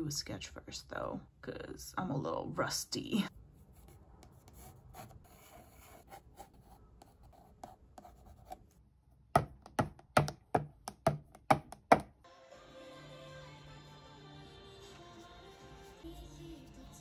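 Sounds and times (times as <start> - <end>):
pencil scratching on paper: 3.3 - 8.8.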